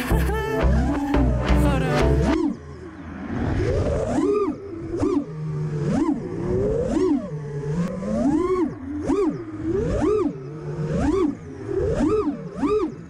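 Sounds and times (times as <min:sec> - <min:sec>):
drone motors revving: 0:00.0 - 0:13.0.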